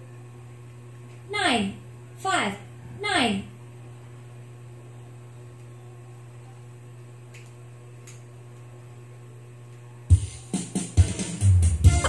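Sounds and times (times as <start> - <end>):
low steady hum: 0.0 - 10.1.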